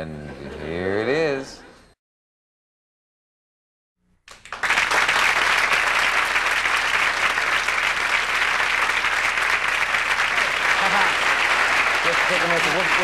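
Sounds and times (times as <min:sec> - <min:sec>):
studio audience applause: 0:04.3 - 0:13.0.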